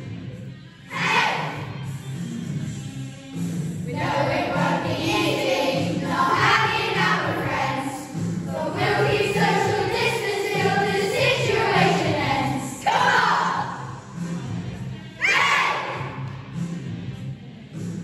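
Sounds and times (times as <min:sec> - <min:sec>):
backing music with bass line: 0:00.0 - 0:18.0
children's choir singing: 0:00.9 - 0:01.7, 0:03.9 - 0:13.9.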